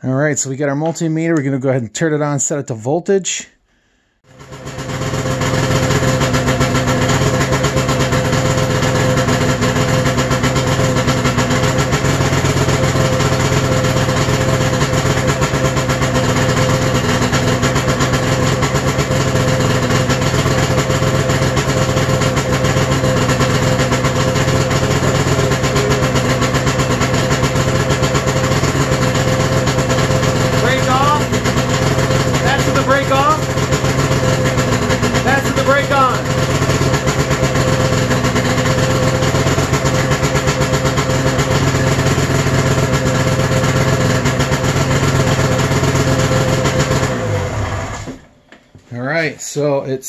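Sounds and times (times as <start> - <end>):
snowmobile engine idling: 4.3 - 48.3.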